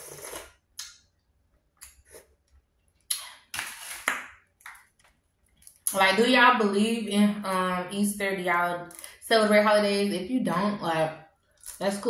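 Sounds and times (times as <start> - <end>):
slurping juice from crab shell: 0.0 - 0.7, 1.9 - 2.4.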